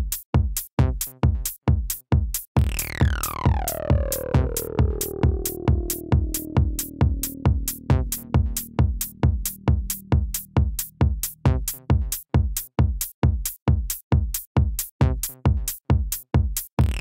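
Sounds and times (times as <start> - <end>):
drum machine kick beat: 0.0 - 17.0
low sustained tone: 3.8 - 11.0.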